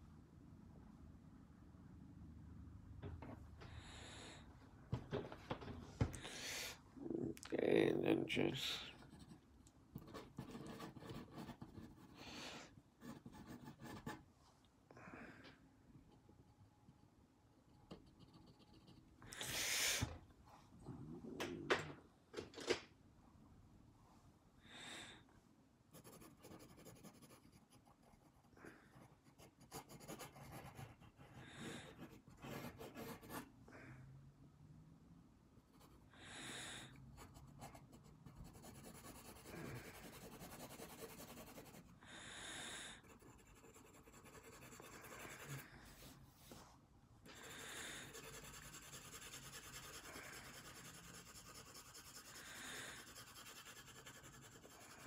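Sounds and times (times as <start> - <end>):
pencil scratching on paper: 8.9 - 12.3, 13.0 - 14.2, 17.9 - 19.1, 25.9 - 33.5, 37.1 - 41.9, 43.0 - 46.2, 47.3 - 55.0.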